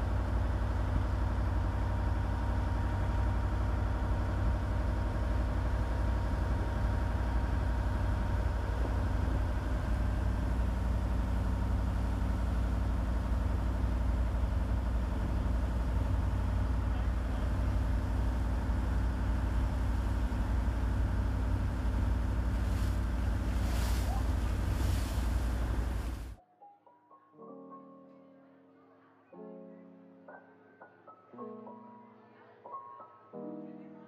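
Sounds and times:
boat engine droning: 0.0s - 26.4s
water rushing past hull: 21.8s - 26.4s.

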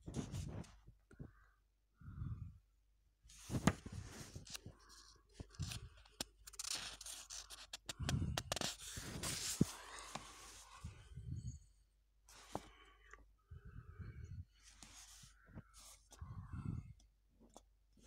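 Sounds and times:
paper pages rustling: 3.4s - 10.6s.

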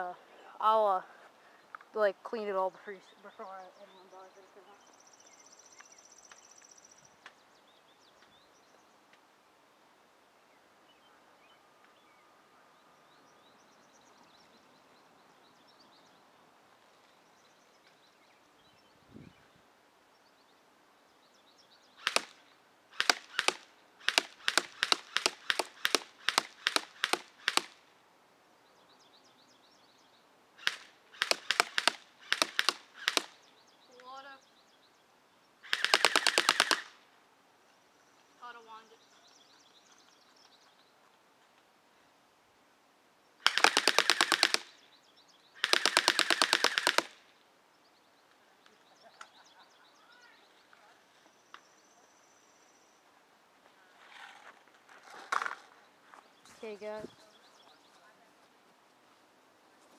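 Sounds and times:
airsoft rifle firing sharp cracks: 22.0s - 27.8s, 30.6s - 33.4s, 35.6s - 37.0s, 43.4s - 44.8s, 45.6s - 47.2s.

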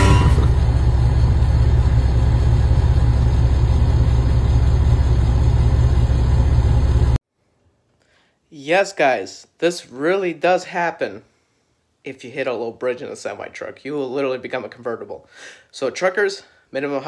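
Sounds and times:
vehicle engine rumbling: 0.0s - 7.2s.

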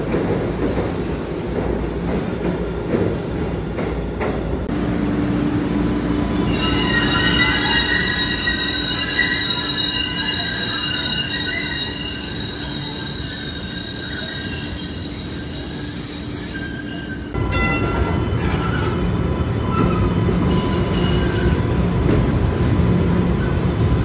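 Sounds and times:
train rumble: 0.0s - 24.0s
train wheels squealing on rails: 6.2s - 21.8s.

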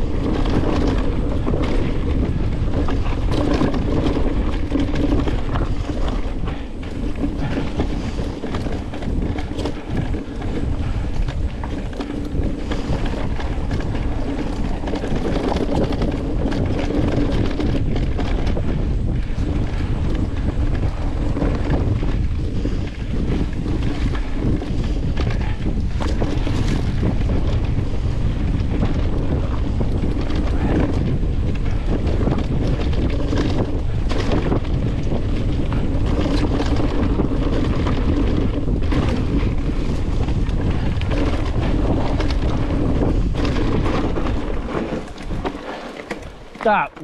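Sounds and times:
bike knocks and rattles: 0.0s - 47.0s
wind rushing over microphone: 0.0s - 47.0s
tyre rumble on dirt: 36.0s - 47.0s.

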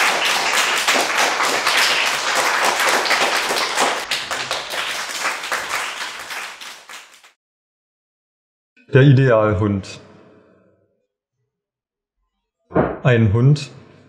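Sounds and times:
hand clapping applause: 0.0s - 7.4s.

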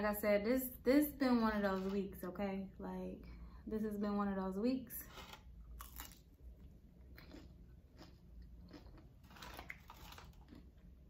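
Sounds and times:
crunchy food biting and chewing: 5.0s - 11.0s.

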